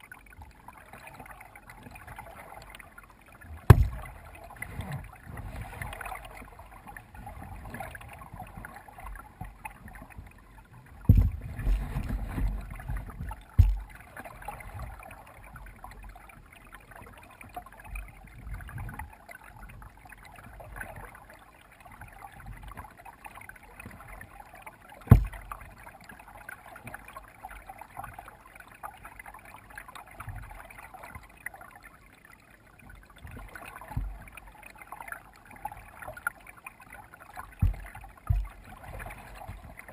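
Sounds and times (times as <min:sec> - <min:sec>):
paddle splashing water: 0:00.0 - 0:39.9
sharp knocks: 0:03.7 - 0:04.1, 0:11.1 - 0:11.4, 0:13.6 - 0:13.9, 0:25.1 - 0:25.4, 0:37.6 - 0:38.5.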